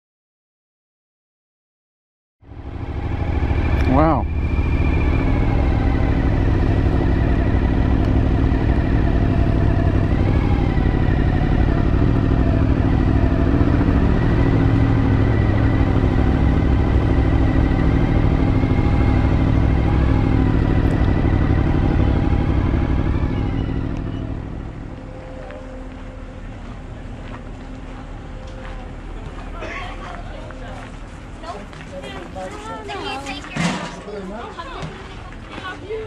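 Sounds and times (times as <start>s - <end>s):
motorcycle engine running: 2.5s - 25.1s.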